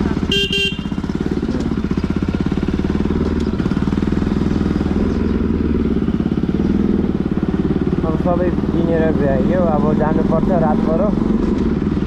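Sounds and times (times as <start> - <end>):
motorcycle engine running: 0.0 - 12.0
horn toots: 0.2 - 1.0.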